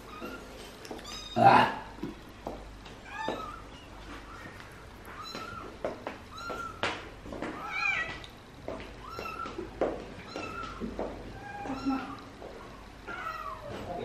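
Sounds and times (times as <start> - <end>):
cat meowing: 1.0 - 1.8, 10.2 - 12.3, 13.1 - 13.8.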